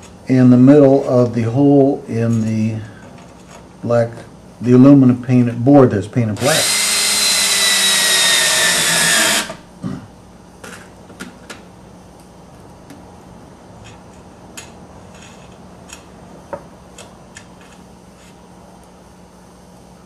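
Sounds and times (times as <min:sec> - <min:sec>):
cordless drill driving screw: 0:06.4 - 0:09.6.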